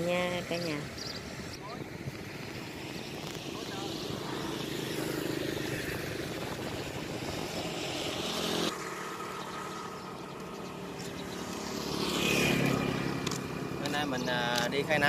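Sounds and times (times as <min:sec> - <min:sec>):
motor engines droning: 0:00.0 - 0:15.0
motorbikes running: 0:00.0 - 0:15.0.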